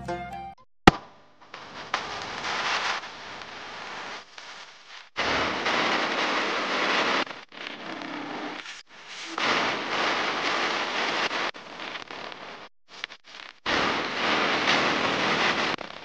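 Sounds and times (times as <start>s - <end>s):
plucked-string background music: 0.0s - 0.6s.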